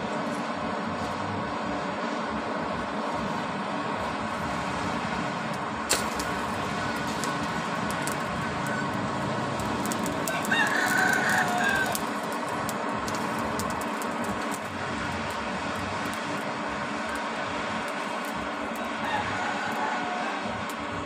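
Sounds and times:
forge air blower rushing: 0:00.0 - 0:21.0
rooster crowing: 0:08.0 - 0:09.0, 0:09.6 - 0:12.3, 0:18.7 - 0:20.8.

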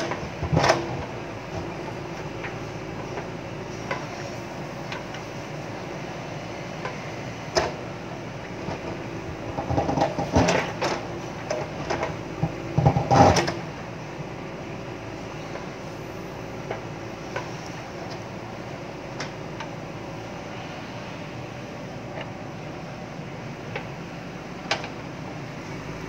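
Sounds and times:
backhoe knocks and clanks: 0:00.0 - 0:05.9, 0:06.6 - 0:13.8, 0:15.2 - 0:20.2, 0:23.6 - 0:25.8
diesel engine running: 0:00.0 - 0:26.0.

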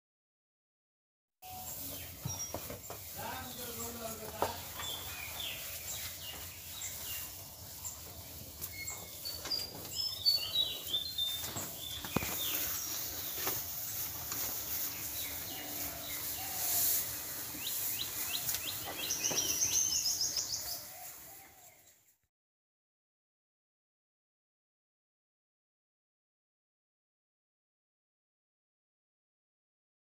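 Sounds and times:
small birds chirping: 0:01.5 - 0:22.0.

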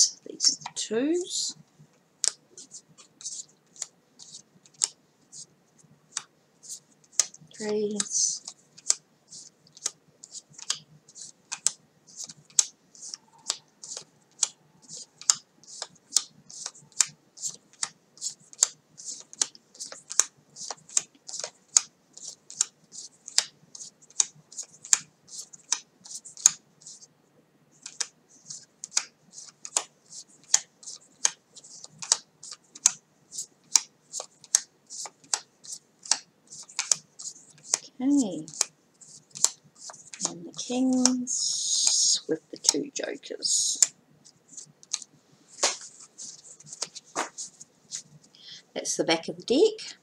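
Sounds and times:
playing cards snapping: 0:44.8 - 0:47.5.

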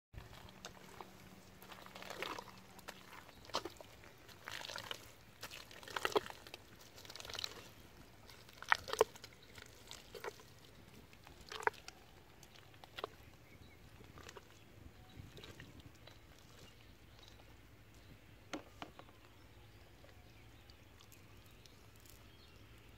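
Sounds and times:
bare feet squelching in mud: 0:00.2 - 0:17.6.

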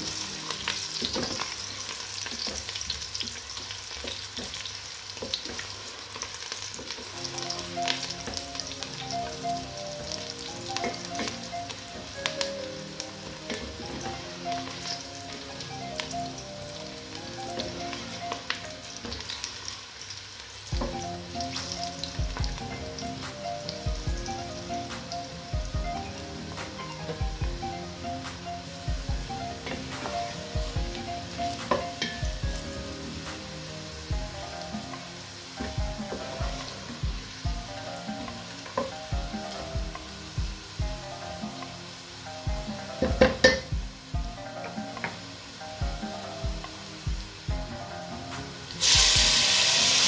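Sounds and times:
onions sizzling in oil: 0:00.0 - 0:50.0
soft background music: 0:00.0 - 0:50.0.

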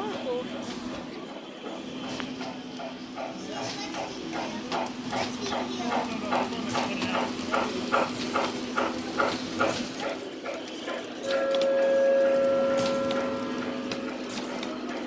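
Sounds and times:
steam locomotive chuffing: 0:00.0 - 0:15.0
steam whistle: 0:11.2 - 0:13.6.

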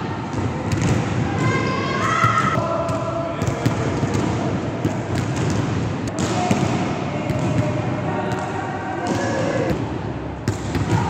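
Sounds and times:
players' voices in a gymnasium: 0:00.0 - 0:11.0
volleyball hits: 0:00.3 - 0:11.0.

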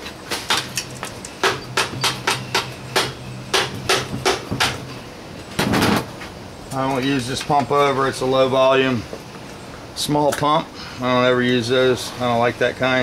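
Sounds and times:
hammer strikes on metal: 0:01.4 - 0:04.9.

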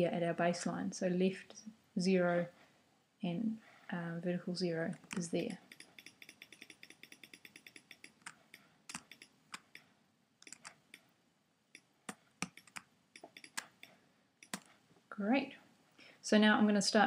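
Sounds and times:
computer keyboard and mouse clicks: 0:05.0 - 0:11.1, 0:11.7 - 0:14.7.

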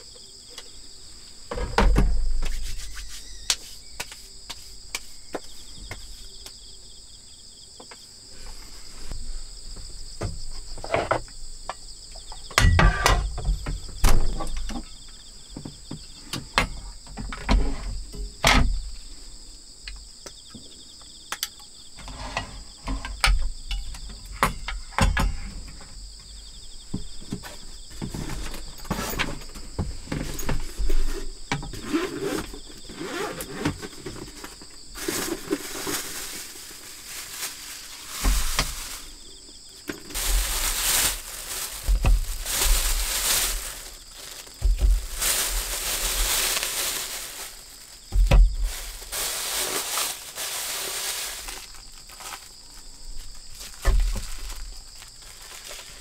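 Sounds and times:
insects chirring: 0:00.0 - 0:56.0
packaging rustling: 0:34.2 - 0:52.6, 0:53.5 - 0:56.0.

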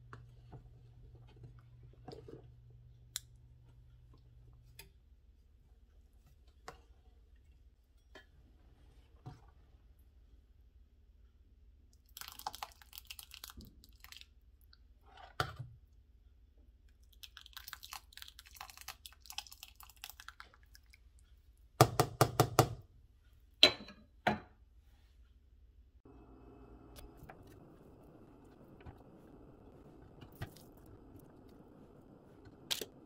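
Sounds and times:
faint steady hum: 0:24.6 - 0:33.0.

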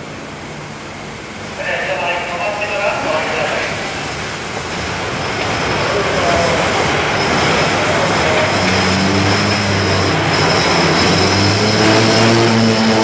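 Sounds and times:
steady low hum: 0:00.0 - 0:08.5
train wheels on rails: 0:00.0 - 0:13.0.

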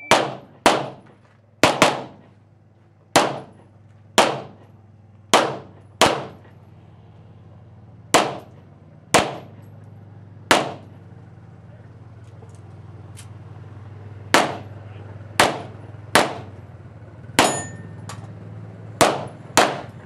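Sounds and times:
pistol shots echoing: 0:00.0 - 0:01.0, 0:01.6 - 0:02.2, 0:03.2 - 0:03.6, 0:04.2 - 0:04.7, 0:05.3 - 0:06.4, 0:08.1 - 0:09.6, 0:10.5 - 0:10.9, 0:14.3 - 0:14.7, 0:15.4 - 0:16.5, 0:19.0 - 0:20.0.

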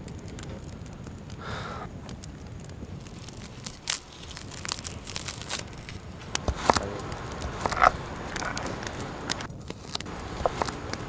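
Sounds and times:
knife and fork carving steak: 0:03.3 - 0:11.0.

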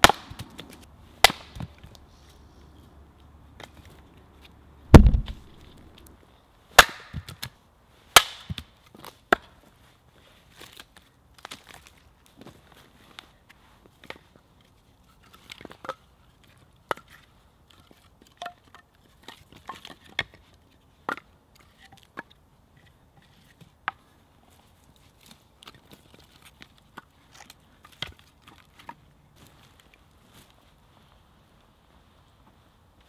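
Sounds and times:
firewood knocking together: 0:04.9 - 0:05.8.

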